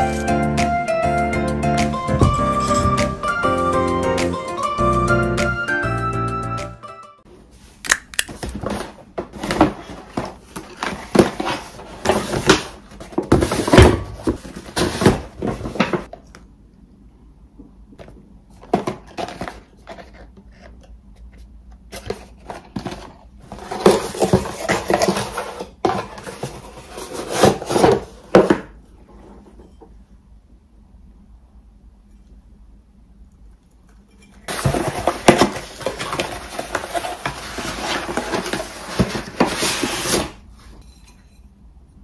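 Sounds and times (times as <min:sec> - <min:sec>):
boxes tapping and knocking: 0:01.9 - 0:03.3, 0:08.4 - 0:16.1, 0:22.0 - 0:28.8, 0:34.5 - 0:39.8
packaging rustling: 0:34.5 - 0:40.4.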